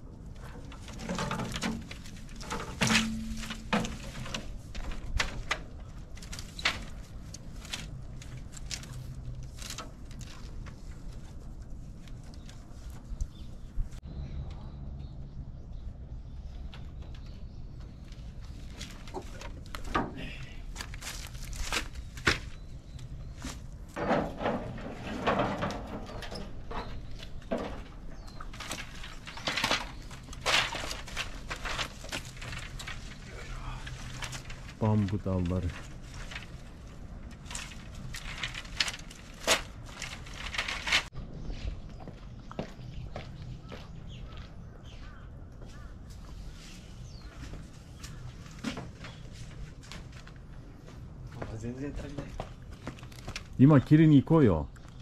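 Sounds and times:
bamboo cracking and snapping: 0:00.4 - 0:11.0, 0:20.7 - 0:22.6, 0:28.5 - 0:34.8, 0:35.8 - 0:41.1.

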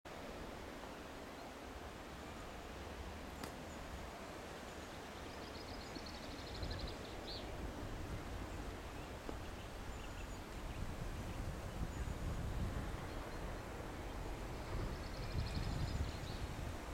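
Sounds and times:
distant steam locomotive rumble: 0:00.1 - 0:16.9.

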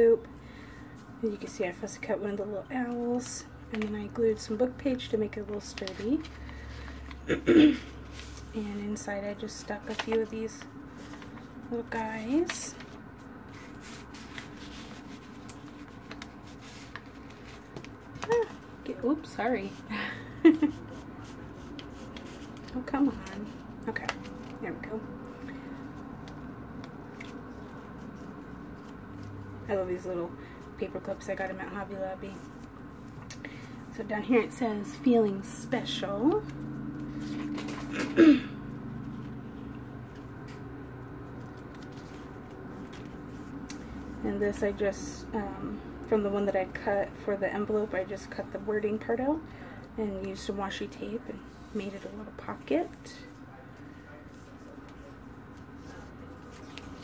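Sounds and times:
paper cards rustling: 0:02.7 - 0:07.2, 0:07.9 - 0:19.8, 0:20.4 - 0:33.7, 0:36.3 - 0:38.1, 0:39.0 - 0:44.2, 0:51.4 - 0:57.0.

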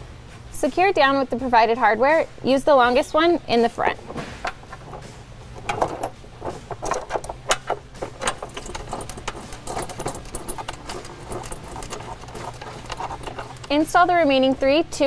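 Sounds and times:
metal bolts clinking on plastic: 0:04.0 - 0:14.1.

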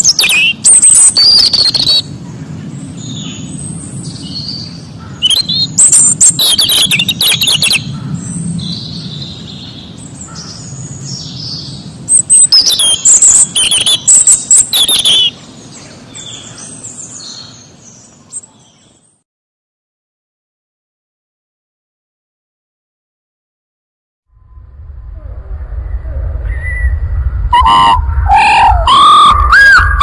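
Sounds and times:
robin singing: 0:00.0 - 0:02.1, 0:02.8 - 0:19.2.

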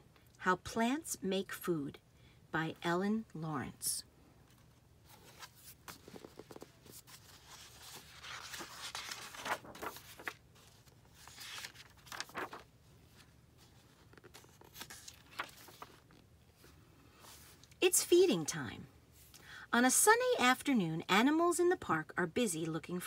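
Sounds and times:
book pages turning: 0:04.5 - 0:17.8.

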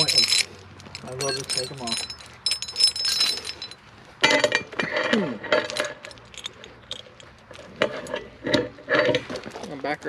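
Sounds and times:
metal clank: 0:00.0 - 0:06.5
steel chain clinking: 0:00.0 - 0:09.5.

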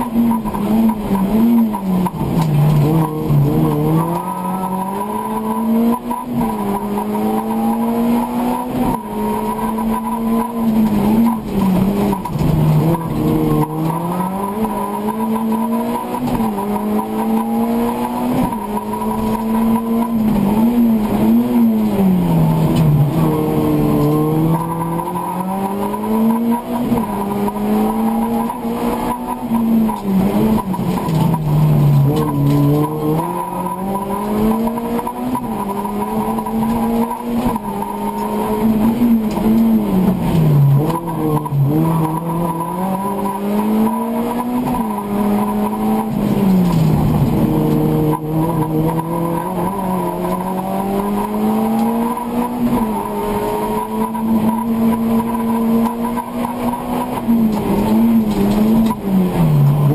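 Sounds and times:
race car engine revving: 0:00.0 - 0:59.9.

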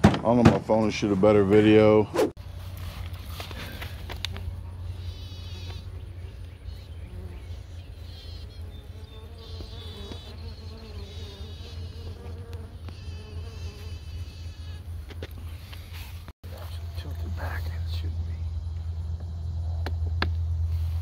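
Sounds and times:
close bee drone: 0:01.3 - 0:21.0
steady low hum: 0:01.9 - 0:10.1, 0:12.0 - 0:21.0
bees buzzing: 0:02.4 - 0:15.9.

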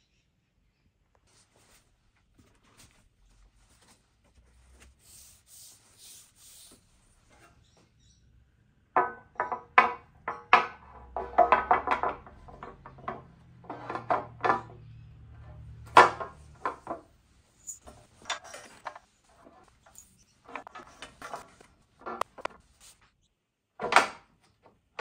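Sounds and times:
parts and packaging handled: 0:16.0 - 0:23.1.

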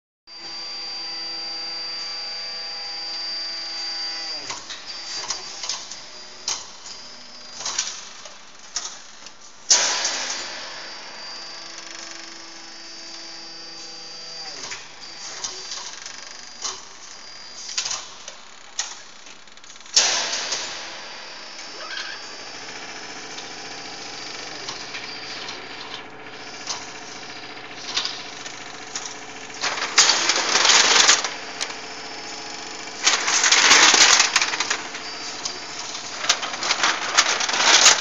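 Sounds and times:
feeder motor humming: 0:21.3 - 0:38.0.

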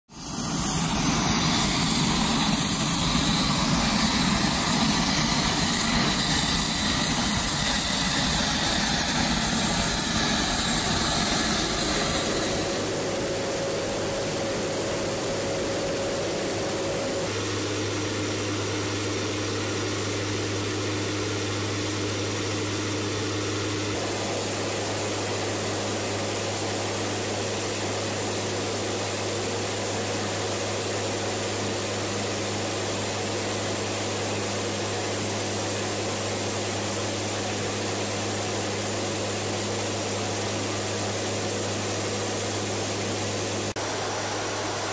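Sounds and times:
turboprop engines droning: 0:00.1 - 0:26.2.

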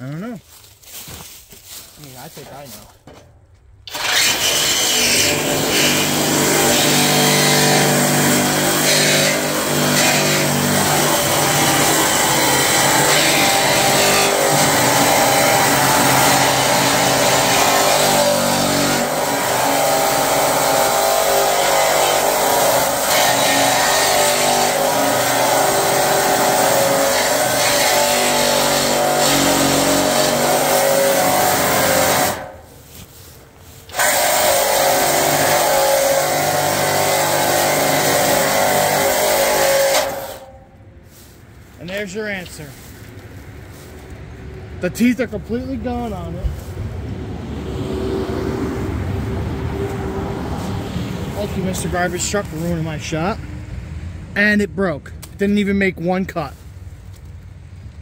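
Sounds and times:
reciprocating saw cutting steel: 0:03.9 - 0:41.2.

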